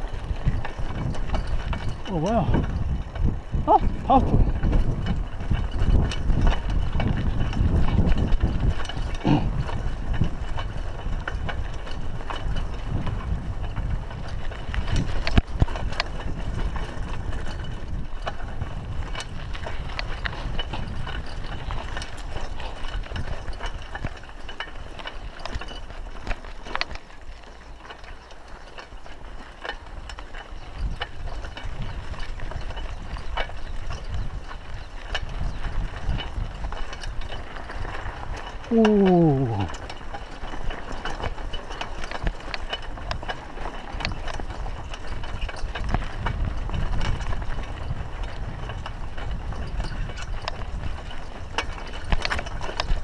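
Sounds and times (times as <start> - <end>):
bike clicks and rattles: 0.0 - 53.0
bike tyres rumbling on gravel: 0.0 - 53.0.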